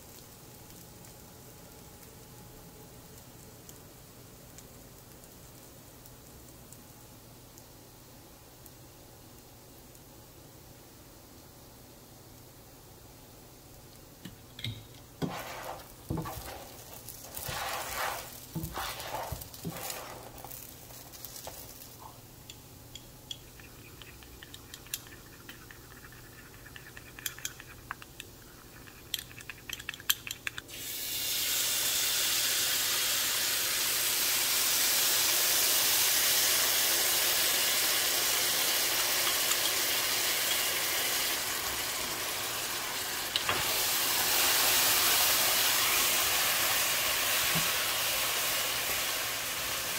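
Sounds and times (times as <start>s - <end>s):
sauce sizzling in frying pan: 15.0s - 25.9s, 30.7s - 49.9s.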